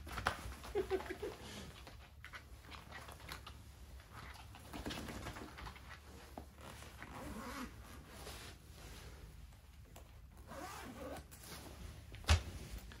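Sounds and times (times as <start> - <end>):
zipper being drawn shut: 7.0 - 7.8, 10.4 - 11.4.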